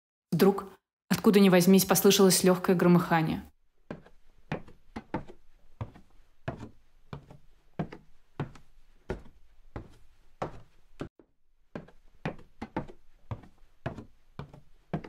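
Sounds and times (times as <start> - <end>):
dull knocks at walking pace: 3.8 - 15.0.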